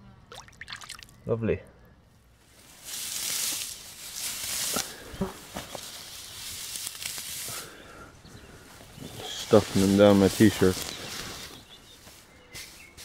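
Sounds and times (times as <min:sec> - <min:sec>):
dry grass rustling and tearing: 0:02.4 - 0:07.9, 0:08.8 - 0:13.0.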